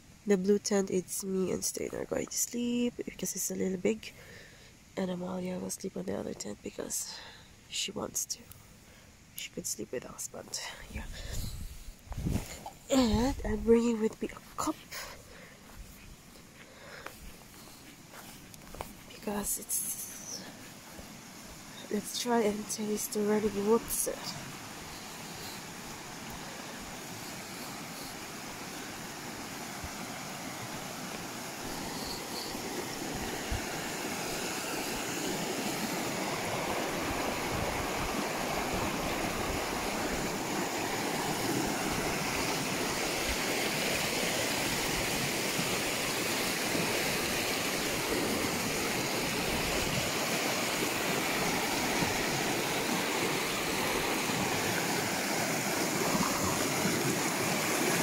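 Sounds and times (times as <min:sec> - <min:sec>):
stream rushing over rocks: 0:16.4 - 0:58.0.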